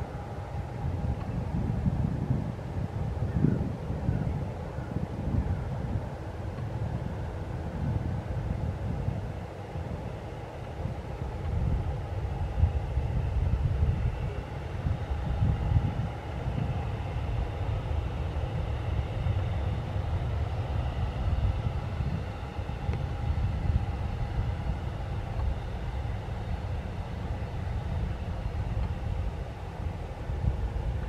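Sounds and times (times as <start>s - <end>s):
faint engine whine: 0.0s - 31.0s
jet engines rumbling: 0.0s - 31.0s.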